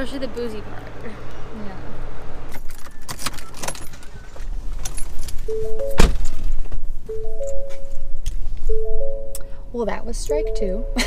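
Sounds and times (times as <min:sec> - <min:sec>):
car door shutting: 0:02.6 - 0:08.1
soft music notes: 0:05.5 - 0:11.0.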